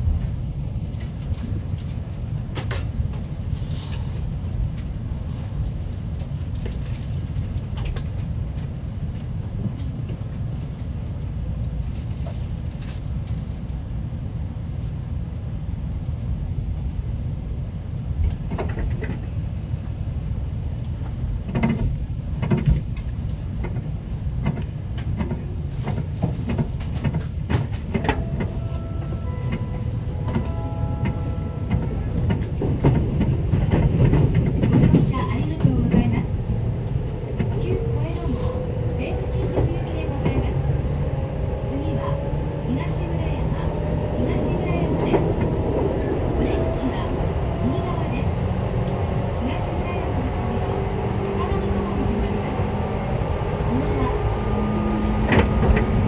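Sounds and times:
train running low rumble: 0.0 - 56.0
clacks and knocks: 21.5 - 28.6, 30.3 - 36.2.

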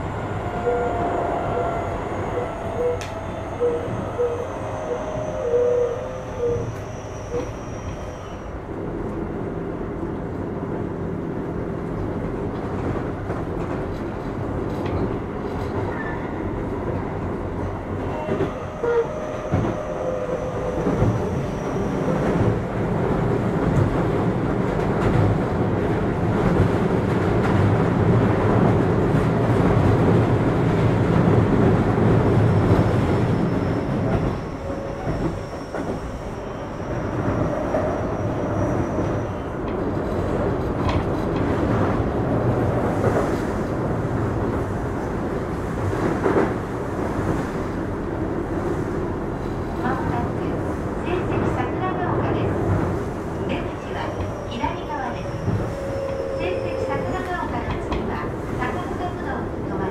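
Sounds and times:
train wheel and rail rumble: 0.0 - 59.9
clacks over rail joints: 57.1 - 58.3.

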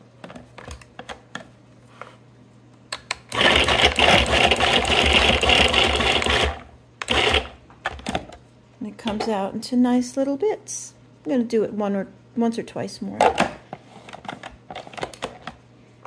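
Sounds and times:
food processor motor chopping: 3.3 - 7.6.

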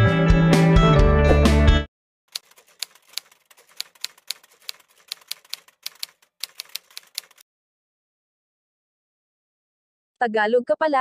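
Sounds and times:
typewriter key clicks: 2.4 - 7.4.

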